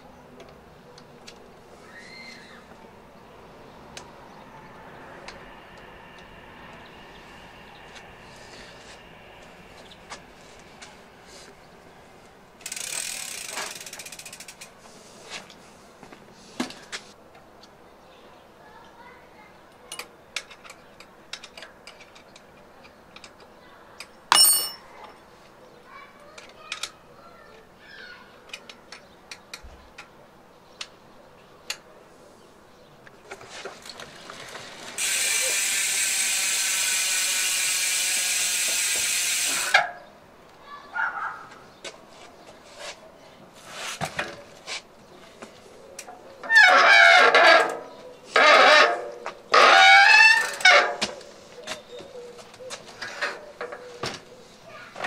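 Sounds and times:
bike clicks and knocks: 0:12.6 - 0:14.8, 0:19.8 - 0:25.2, 0:28.5 - 0:30.2, 0:33.0 - 0:40.0, 0:44.0 - 0:54.3
small metal clicks and taps: 0:19.9 - 0:24.2
ringing metal clank: 0:24.3 - 0:24.9
bike disc brake squealing: 0:35.0 - 0:40.0, 0:48.4 - 0:51.0.

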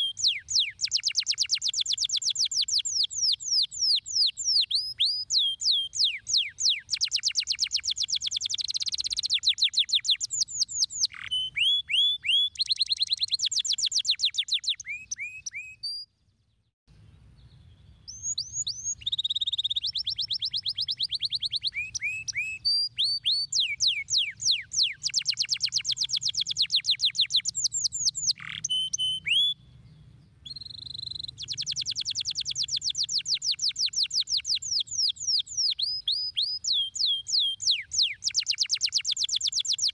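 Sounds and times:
canary singing: 0:00.0 - 0:16.1, 0:17.4 - 0:39.9.

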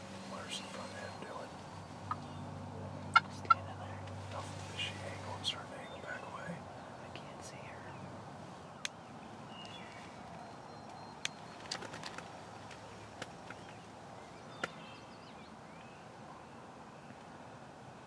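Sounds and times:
steady background hiss: 0:00.0 - 0:10.7
small birds chirping: 0:00.1 - 0:17.3.

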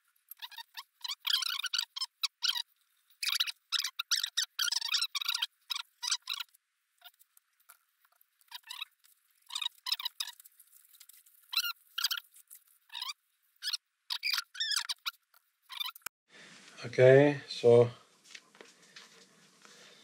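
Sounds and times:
small animal squeaky calls: 0:00.3 - 0:07.2, 0:08.5 - 0:16.1.

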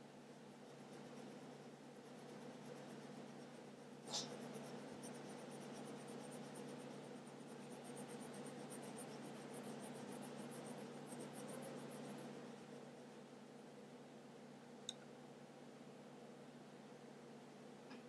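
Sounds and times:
pencil scratching on paper: 0:00.2 - 0:13.2.

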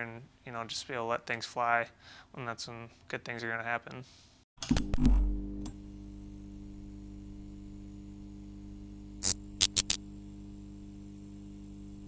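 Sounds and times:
steady electrical hum: 0:05.4 - 0:12.0
sharp clicks or crackles: 0:09.2 - 0:10.0.

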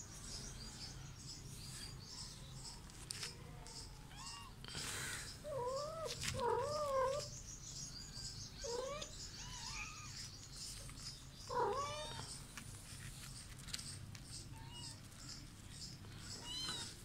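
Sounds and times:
cat meowing: 0:11.5 - 0:12.3.

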